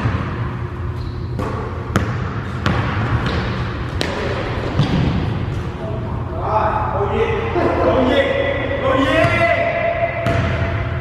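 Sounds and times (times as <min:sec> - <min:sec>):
steady low hum: 0:00.0 - 0:11.0
basketball bouncing on hardwood floor: 0:01.4 - 0:05.2, 0:10.2 - 0:10.6.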